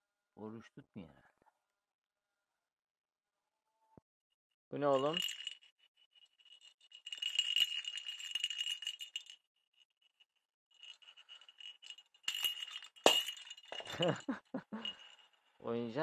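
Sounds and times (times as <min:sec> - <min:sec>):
bell in cat ball toy jingling: 0:04.8 - 0:09.4, 0:10.7 - 0:16.0.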